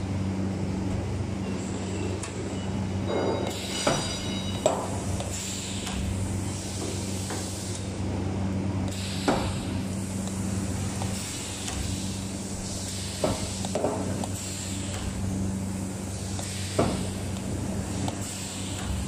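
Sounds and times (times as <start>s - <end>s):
sharp metallic knocks: 3.1s - 5.0s
welder electric hum with hiss: 3.6s - 19.0s.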